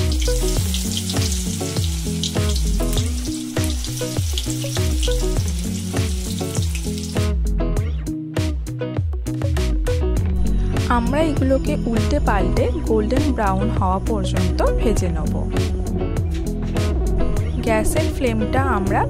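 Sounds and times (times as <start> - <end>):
fish sizzling in hot oil: 0.0 - 7.4
background music with bass line: 0.0 - 19.0.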